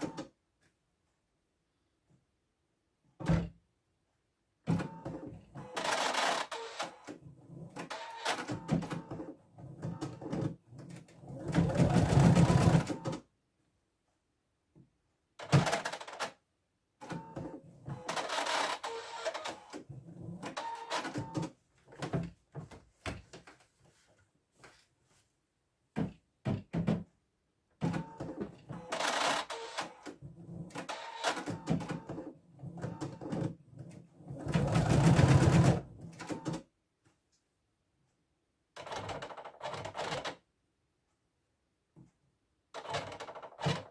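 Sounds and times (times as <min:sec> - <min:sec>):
embroidery machine stitching: 0:04.7 - 0:09.2, 0:09.8 - 0:13.2, 0:17.0 - 0:21.5, 0:27.8 - 0:36.6.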